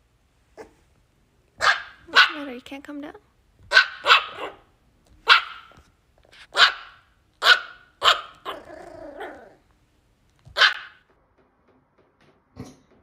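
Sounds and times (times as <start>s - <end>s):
puppy yipping: 1.6s - 2.4s, 3.7s - 5.8s, 6.4s - 9.6s, 10.5s - 11.0s
puppy growling: 8.4s - 9.7s.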